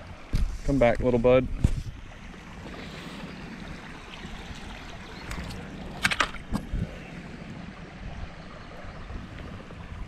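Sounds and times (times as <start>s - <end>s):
creek water rushing: 1.9s - 10.0s
sharp splashes and knocks: 5.2s - 6.8s.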